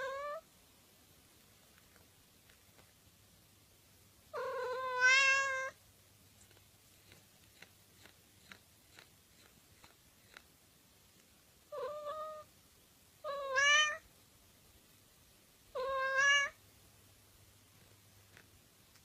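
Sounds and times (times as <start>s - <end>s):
cat meowing: 0.0s - 0.4s, 4.3s - 5.8s, 11.7s - 12.5s, 13.2s - 14.0s, 15.7s - 16.6s.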